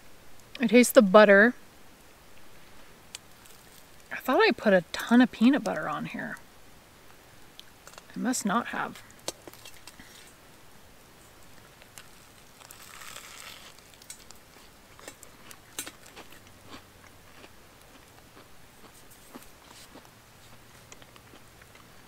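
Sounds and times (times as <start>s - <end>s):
faint crunching bite: 3.1s - 4.1s, 11.8s - 21.9s.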